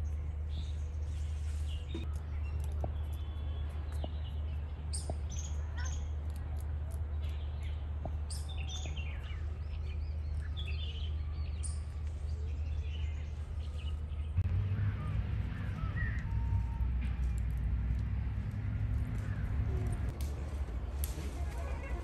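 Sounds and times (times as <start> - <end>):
low background hum: 0.0 - 22.0
birds chirping and calling: 7.1 - 20.1.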